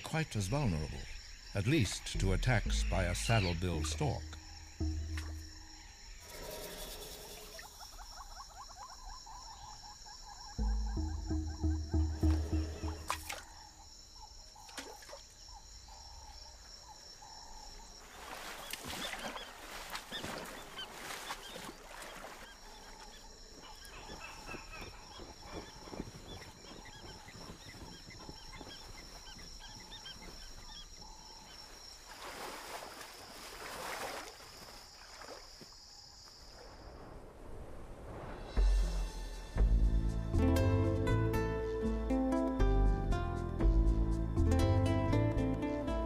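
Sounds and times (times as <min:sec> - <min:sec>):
water splashing: 0:02.2 - 0:06.8, 0:10.6 - 0:13.6, 0:18.0 - 0:23.1, 0:32.0 - 0:35.6
high pulsing chirr: 0:02.2 - 0:07.5, 0:10.5 - 0:13.4.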